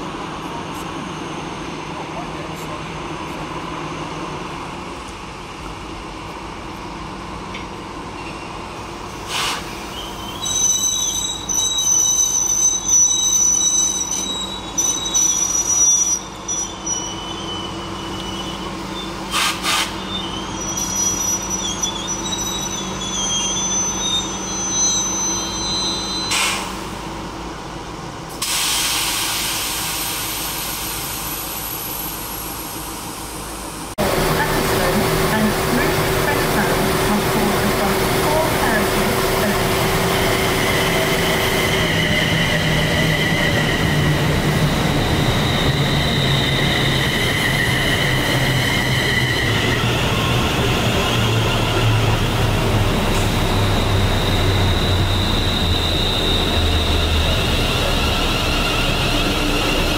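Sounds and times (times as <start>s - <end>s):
wheels squealing: 9.9s - 26.7s, 39.5s - 59.9s
diesel engine running: 34.0s - 40.3s.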